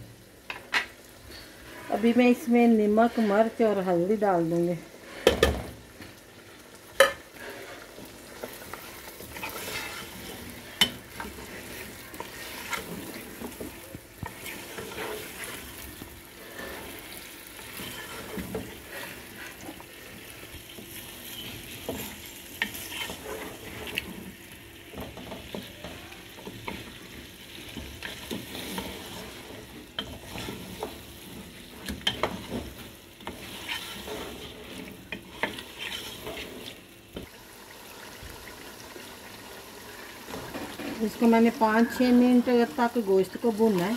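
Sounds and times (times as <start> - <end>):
meat sizzling in a pot: 0.0 - 43.9
wooden spoon scraping a pot: 1.3 - 3.8, 7.0 - 36.9.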